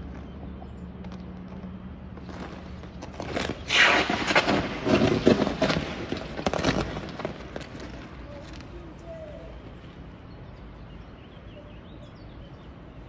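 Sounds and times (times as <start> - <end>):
electric arcing crackles and bangs: 3.1 - 8.2.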